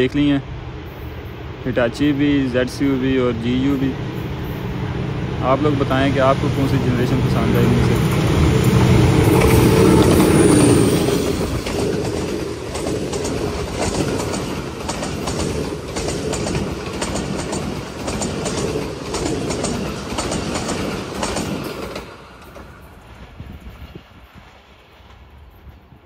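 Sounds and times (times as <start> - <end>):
locomotive rumbling: 0.0 - 26.0
train wheels clicking over rail joints: 5.4 - 25.9.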